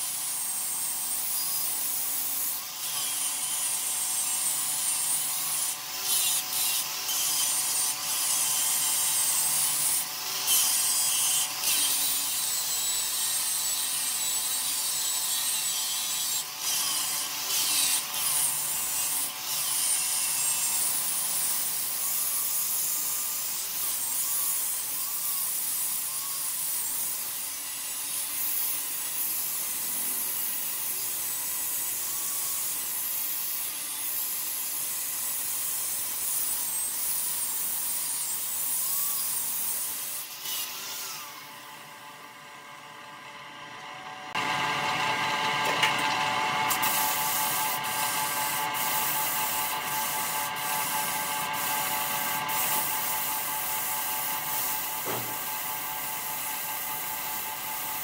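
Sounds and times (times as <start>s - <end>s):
lathe motor hum: 41.6s - 57.7s
tool scraping spinning wood: 44.4s - 58.0s
sharp knocks: 55.0s - 55.4s.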